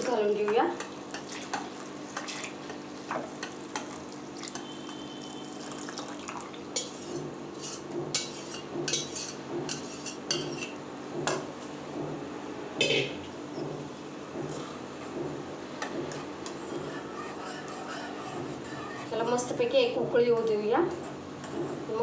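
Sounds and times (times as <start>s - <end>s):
milk pouring into a pan: 5.6s - 6.6s
steady low hum: 6.8s - 20.2s.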